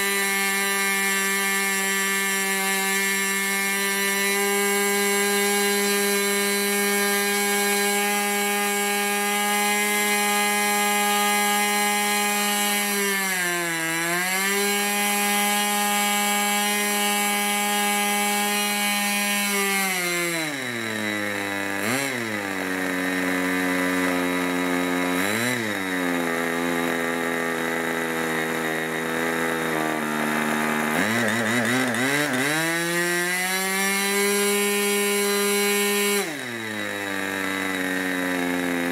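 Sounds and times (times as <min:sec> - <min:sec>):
model glow engine running: 0:14.6 - 0:38.9.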